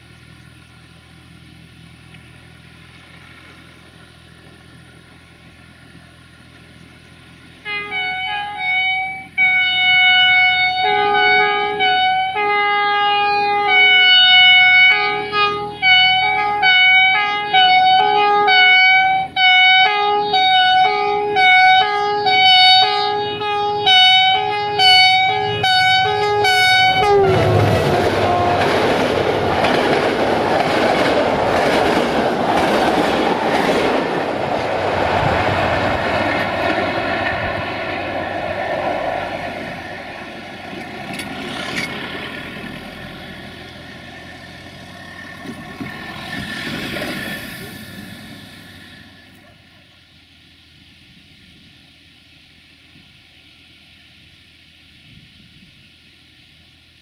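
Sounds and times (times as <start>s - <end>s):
train wheels on rail: 0.0s - 57.0s
locomotive air horn blasts: 7.6s - 29.5s.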